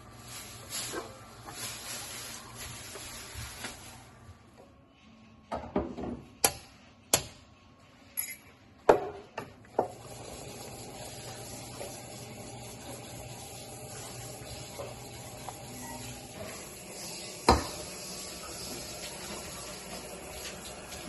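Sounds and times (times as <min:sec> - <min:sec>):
curry simmering: 0:09.9 - 0:21.0.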